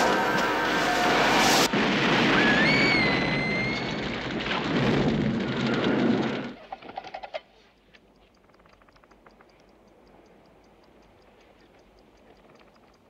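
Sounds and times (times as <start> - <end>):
roar of fire explosion: 0.4 - 6.6.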